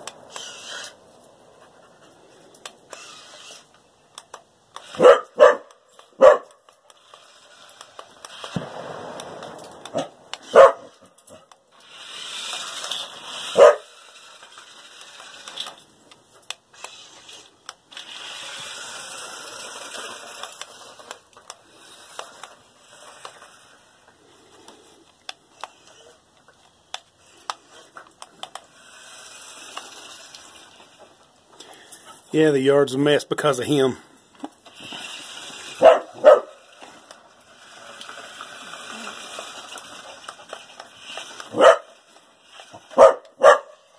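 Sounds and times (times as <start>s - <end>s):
electric motors whirring: 0.0s - 32.0s, 33.6s - 43.9s
wheels hissing over concrete: 0.0s - 43.9s
dog barking sharply: 5.0s - 6.5s, 9.9s - 10.9s, 13.6s - 13.8s, 35.8s - 36.6s, 41.5s - 41.9s, 43.0s - 43.8s.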